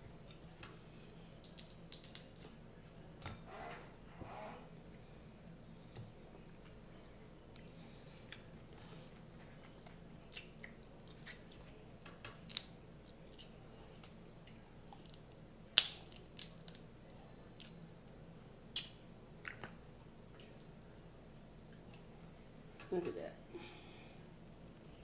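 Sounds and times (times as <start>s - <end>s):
crab shells cracking: 1.4s - 2.6s, 10.3s - 14.2s, 14.9s - 16.9s.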